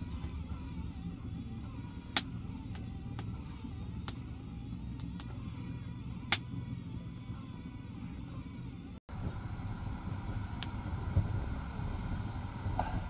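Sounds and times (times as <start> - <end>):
wood fire crackling: 9.1 - 12.5.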